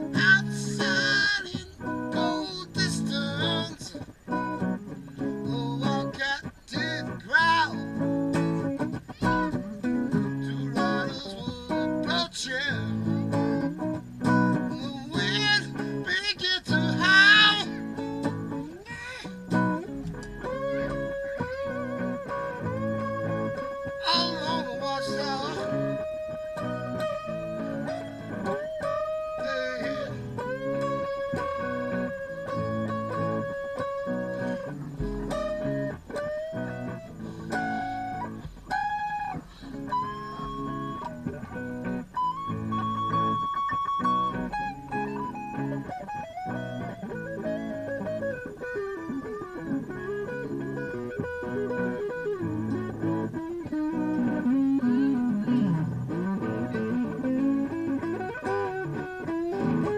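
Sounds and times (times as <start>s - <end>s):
electric guitar lead bending notes: 0.0s - 59.9s
rhythmic chord backing: 19.4s - 59.9s.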